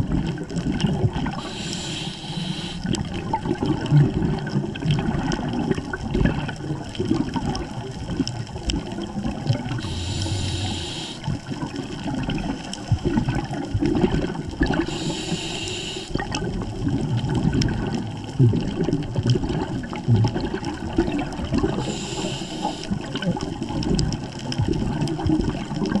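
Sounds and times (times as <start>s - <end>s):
underwater bubbles burbling: 0.0s - 26.0s
diver breathing through regulator: 1.4s - 3.0s, 9.8s - 11.3s, 14.7s - 16.2s, 21.7s - 22.9s.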